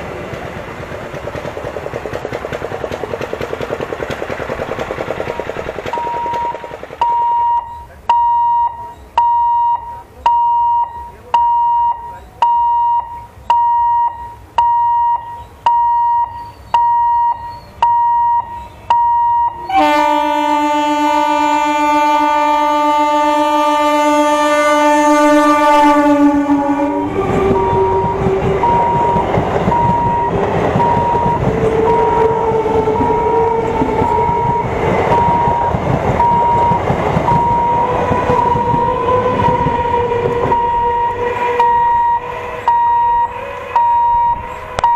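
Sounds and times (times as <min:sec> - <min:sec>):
train wheels rumbling on rails: 0:00.0 - 0:09.2, 0:15.3 - 0:44.9
train whine rising in pitch: 0:00.0 - 0:10.0, 0:12.7 - 0:44.9
level crossing warning beeper: 0:05.9 - 0:20.9, 0:24.0 - 0:44.9
train horn blast: 0:19.6 - 0:29.2, 0:29.8 - 0:35.6, 0:37.4 - 0:44.9.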